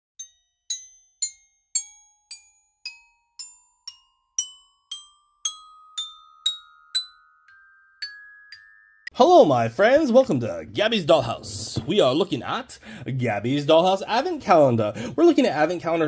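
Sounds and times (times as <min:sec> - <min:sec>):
bell-like mallet percussion melody: 0:00.2 - 0:09.2.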